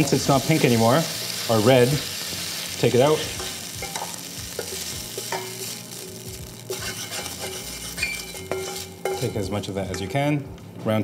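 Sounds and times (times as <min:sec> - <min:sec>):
beef sizzling in a wok: 0:00.0 - 0:09.7
spatula clinking on pan: 0:03.4 - 0:05.7, 0:06.7 - 0:10.2
spatula scraping pan: 0:06.7 - 0:10.1.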